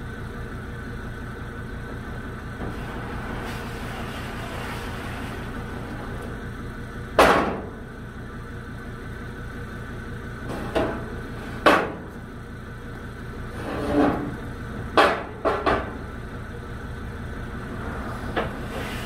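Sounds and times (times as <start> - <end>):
engine idling: 0.0 - 19.0
metal ramp clanging: 13.6 - 16.0.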